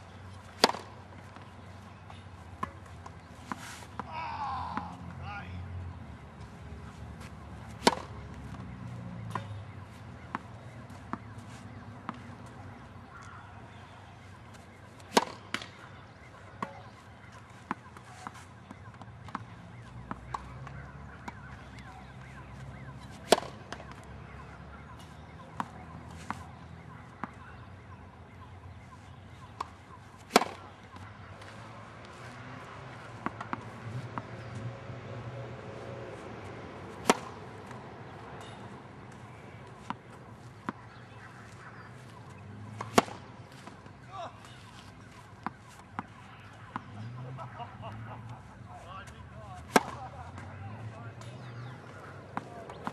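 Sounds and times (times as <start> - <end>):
tennis racket hitting ball: 0.5 - 1.5, 7.2 - 8.2, 15.0 - 15.8, 23.2 - 24.0, 29.6 - 31.5, 37.0 - 37.8, 40.6 - 43.8, 49.6 - 50.5.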